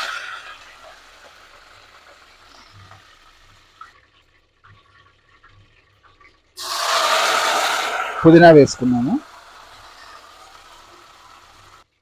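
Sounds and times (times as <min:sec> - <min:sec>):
leaves sizzling in hot oil: 0:00.0 - 0:04.0, 0:06.6 - 0:12.0
small crackles: 0:00.0 - 0:06.6.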